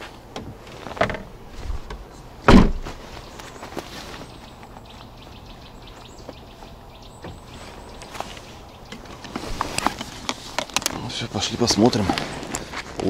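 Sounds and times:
car tailgate slamming shut: 2.5s - 2.9s.

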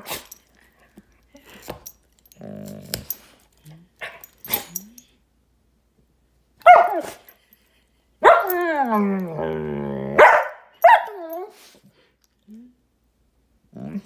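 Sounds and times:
dog growling: 2.3s - 3.2s, 8.8s - 10.2s, 13.7s - 14.0s
dog barking: 6.6s - 7.2s, 8.2s - 8.5s, 10.2s - 11.2s.

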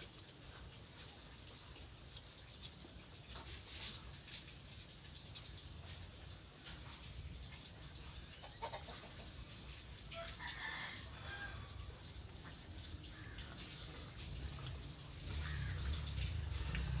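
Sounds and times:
faint rooster crowing: 10.1s - 12.3s.

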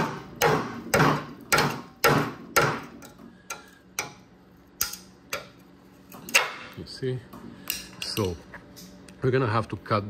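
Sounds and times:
steel rod tapping on sheet steel: 0.0s - 5.6s.

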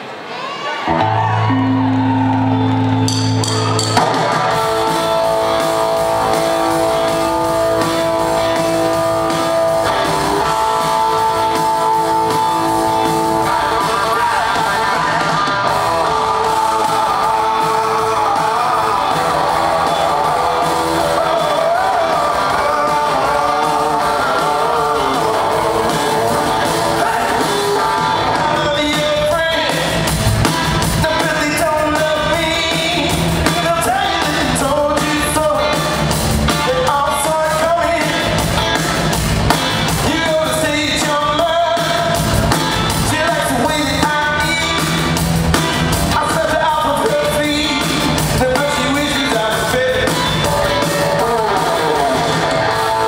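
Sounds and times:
live rock band playing: 0.8s - 53.0s
man singing: 10.2s - 39.0s, 39.8s - 53.0s.

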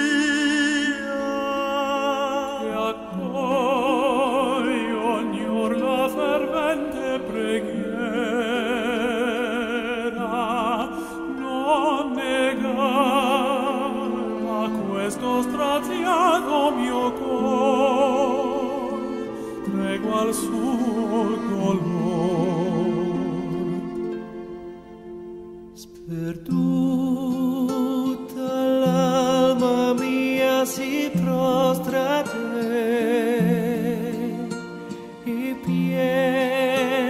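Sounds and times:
operatic solo singing: 0.0s - 24.5s
instrumental accompaniment: 0.0s - 37.0s.

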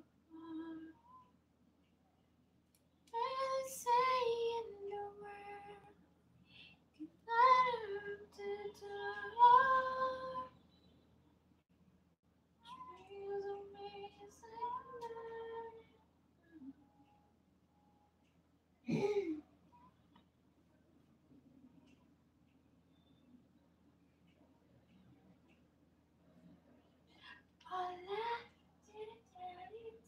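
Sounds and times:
woman singing unaccompanied: 0.0s - 1.2s, 3.1s - 10.6s, 12.6s - 16.0s, 27.2s - 30.0s.

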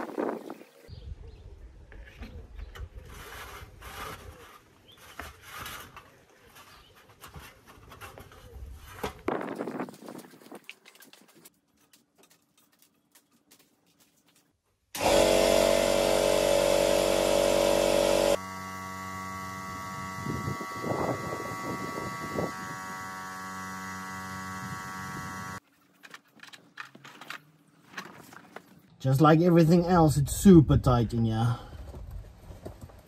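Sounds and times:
small electric motor whining: 15.0s - 25.6s.

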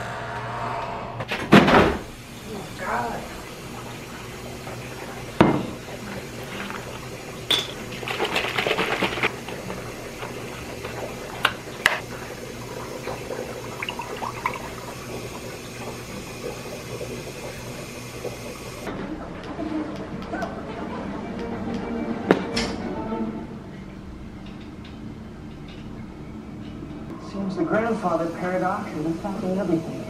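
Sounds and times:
kitchen items rattling: 6.5s - 9.4s.

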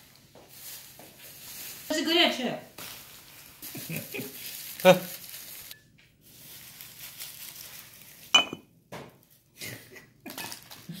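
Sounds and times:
ceramic lid clinking on pot: 8.4s - 8.6s.

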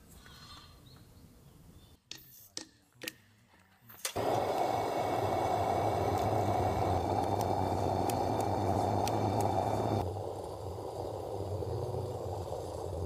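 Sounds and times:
lantern flame hissing: 4.1s - 13.0s.

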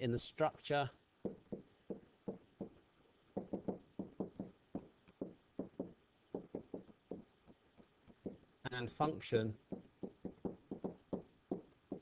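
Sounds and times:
stylus pen tapping: 1.2s - 8.4s, 9.7s - 12.0s.

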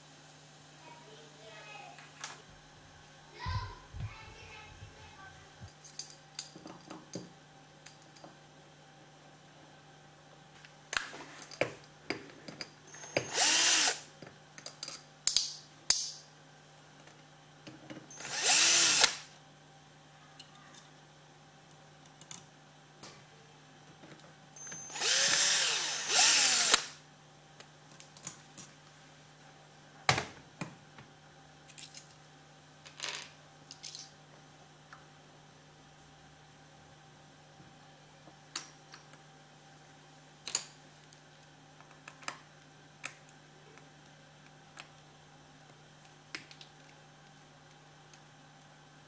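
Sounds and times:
cordless drill whirring: 13.2s - 14.1s, 18.1s - 19.3s, 24.8s - 27.0s.

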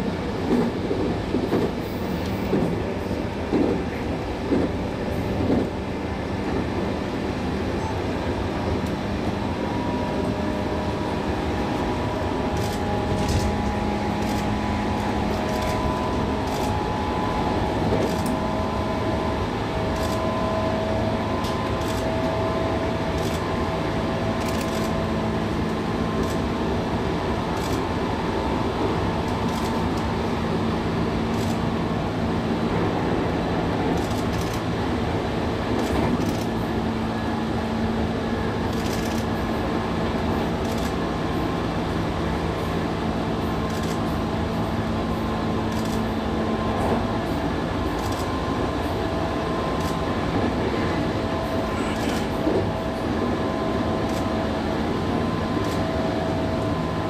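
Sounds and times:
electric train running: 0.2s - 57.0s
wheels clicking on track: 12.5s - 16.8s.

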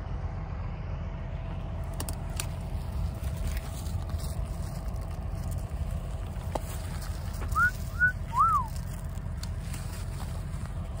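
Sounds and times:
steady low rumble: 0.0s - 11.0s
short whistled notes: 7.5s - 8.7s.

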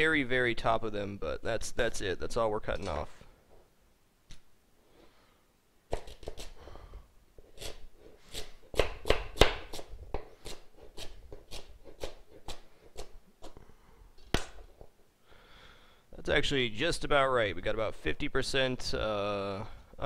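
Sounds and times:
knife chopping carrots on board: 5.9s - 6.6s, 7.5s - 13.6s.

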